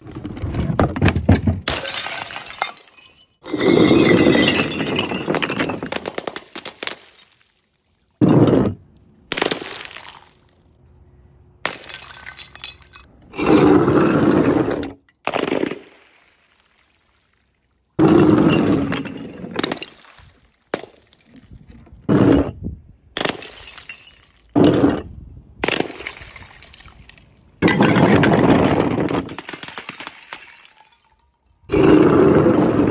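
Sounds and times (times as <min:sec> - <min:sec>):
glass bottles shattering on concrete: 0:01.6 - 0:10.6, 0:11.6 - 0:13.1, 0:18.0 - 0:21.7, 0:23.2 - 0:24.6, 0:25.6 - 0:31.8
glass shards rattling and clinking: 0:01.8 - 0:06.0, 0:11.7 - 0:13.1, 0:25.8 - 0:28.4, 0:29.0 - 0:31.6.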